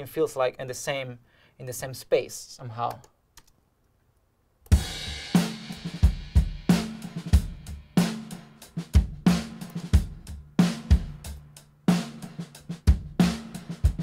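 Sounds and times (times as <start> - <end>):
acoustic drum kit groove: 4.7 - 14.0.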